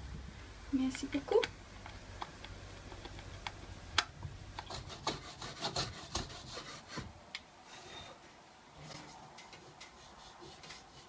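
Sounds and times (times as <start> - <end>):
rasping on a wooden board: 4.7 - 7.1.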